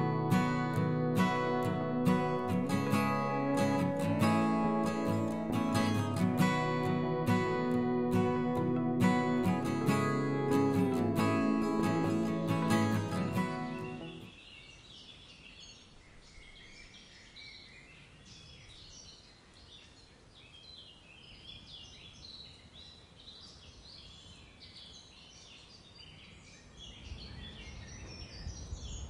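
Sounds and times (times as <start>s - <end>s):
birds chirping: 0.0s - 14.4s
outdoor background noise: 0.0s - 29.0s.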